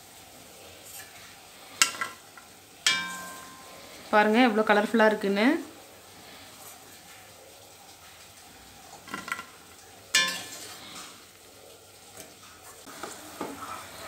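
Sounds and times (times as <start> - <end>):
oil sizzling: 0.0 - 14.0
metal spoon clinking on cookware: 2.8 - 3.9, 9.1 - 10.8.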